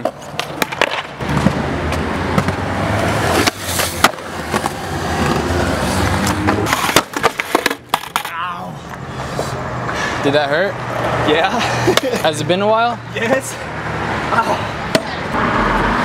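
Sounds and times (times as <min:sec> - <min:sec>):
skateboard tail clacking: 0:00.0 - 0:02.6, 0:03.2 - 0:09.0
skateboard wheels rolling on concrete: 0:00.0 - 0:16.0.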